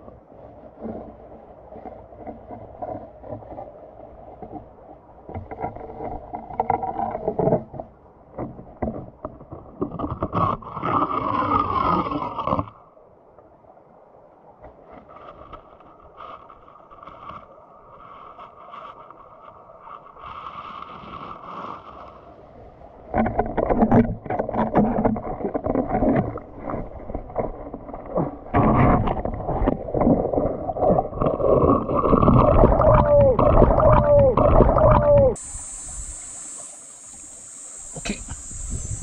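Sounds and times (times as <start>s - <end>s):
knocking and scraping underwater: 0.0s - 12.8s, 14.6s - 39.0s
bubbling gurgles: 28.0s - 39.0s
underwater water hiss: 35.4s - 39.0s.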